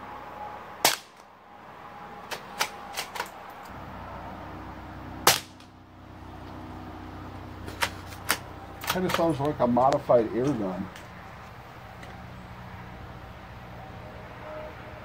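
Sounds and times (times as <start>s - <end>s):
rifle shots: 0.8s - 1.2s, 5.2s - 5.7s.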